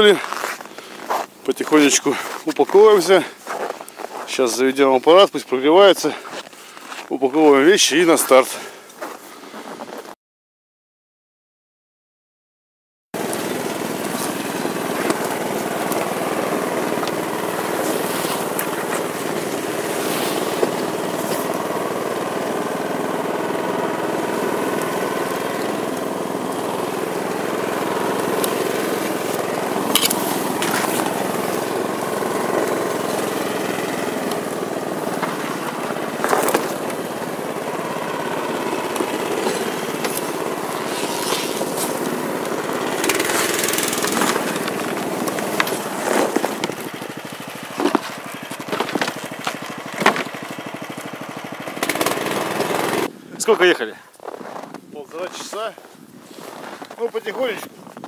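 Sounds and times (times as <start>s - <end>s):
small engine running under load: 0.0s - 8.8s, 13.2s - 53.2s
branches striking machine: 13.2s - 55.7s.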